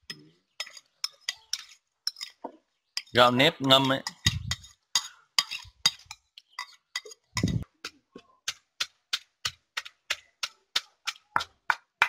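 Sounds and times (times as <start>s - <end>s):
spoon scraping and tapping bowl: 0.0s - 11.6s
wooden pestle pounding rice: 7.4s - 12.0s.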